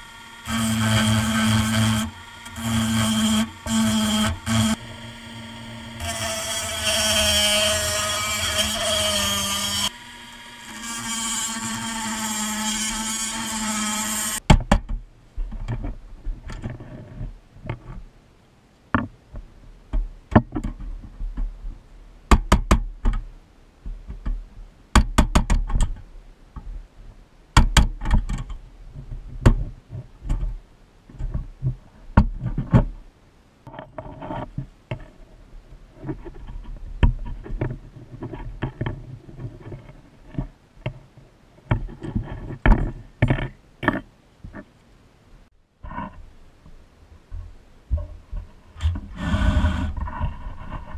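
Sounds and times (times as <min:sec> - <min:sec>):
rotary tool cutting metal: 0:00.0 - 0:14.4.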